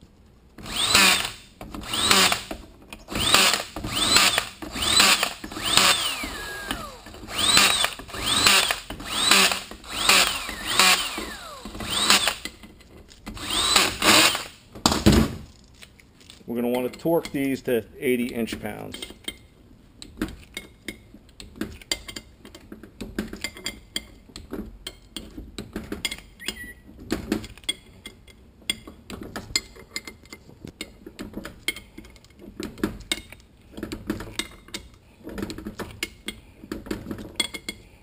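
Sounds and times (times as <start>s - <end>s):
torque wrench ratchet clicks: 3.1s - 12.5s, 13.4s - 14.6s.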